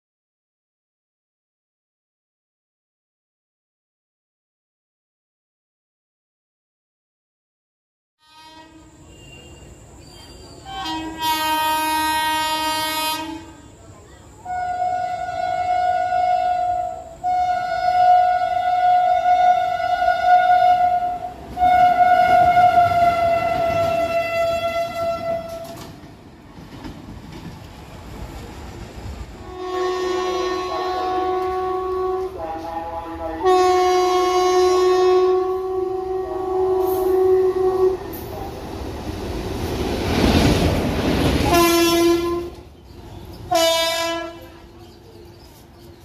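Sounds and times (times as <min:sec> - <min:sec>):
locomotive horn blast: 0:08.2 - 0:09.8, 0:10.6 - 0:13.8, 0:14.4 - 0:25.9, 0:29.4 - 0:38.5, 0:41.4 - 0:42.6, 0:43.5 - 0:44.7
locomotive rumbling on rails: 0:08.6 - 0:46.0.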